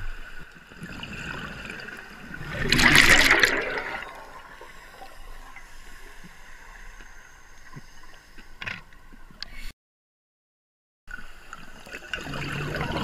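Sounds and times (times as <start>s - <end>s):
air bubbles: 0.8s - 4.6s, 12.1s - 13.0s
muffled underwater hiss: 4.6s - 9.7s.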